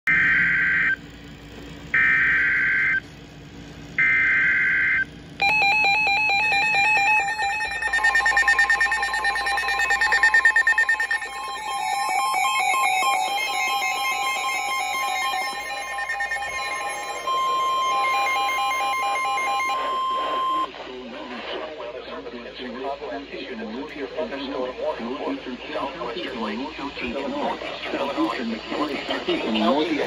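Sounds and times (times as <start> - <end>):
fast-pulsing alarm beeps: 0.1 - 1.0, 1.9 - 3.0, 4.0 - 20.7
steady alert tones: 4.0 - 20.7
digital data screeching: 5.4 - 20.7.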